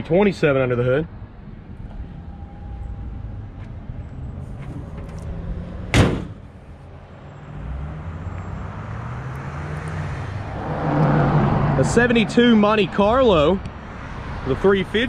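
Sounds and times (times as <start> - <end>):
low rumble of traffic: 0.0 - 15.0
car hood slamming shut: 5.9 - 6.5.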